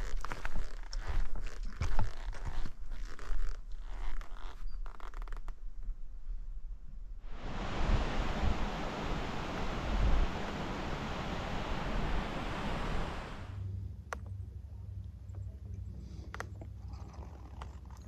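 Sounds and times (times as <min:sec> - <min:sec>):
wind buffeting microphone: 0:07.2 - 0:13.6.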